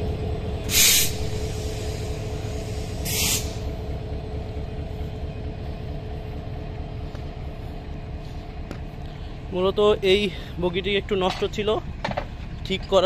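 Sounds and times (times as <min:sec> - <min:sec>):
diesel locomotive rumbling: 0:00.0 - 0:13.0
air brake hisses: 0:00.7 - 0:03.8.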